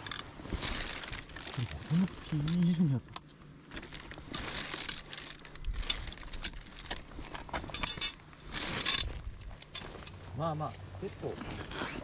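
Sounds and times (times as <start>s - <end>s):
plastic bag crinkling: 0.6s - 2.8s, 3.7s - 7.4s.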